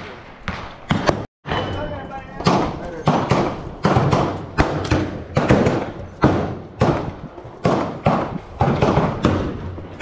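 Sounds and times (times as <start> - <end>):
gunshots with echo: 2.4 - 10.0.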